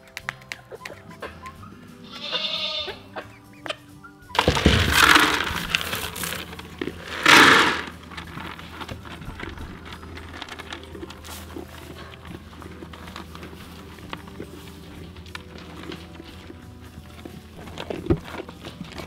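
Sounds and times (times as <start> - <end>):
soft background music: 0.0 - 19.0
high animal call: 1.1 - 3.8
goat bleating: 2.0 - 3.3.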